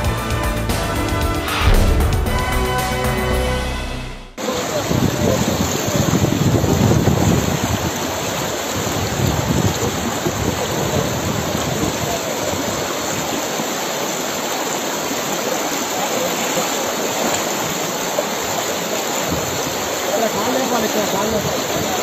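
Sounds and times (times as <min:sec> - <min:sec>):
floodwater rushing through stream: 0:04.4 - 0:22.0.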